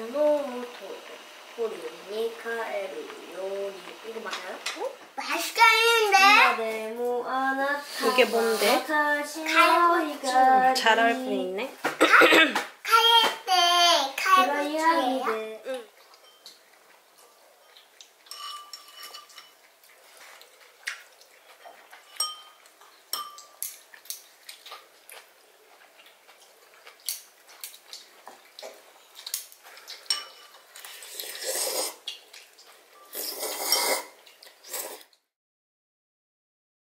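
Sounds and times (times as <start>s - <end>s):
chopsticks clinking on metal bowl: 16.1s - 16.6s, 17.2s - 19.7s, 21.9s - 23.8s, 28.6s - 31.0s.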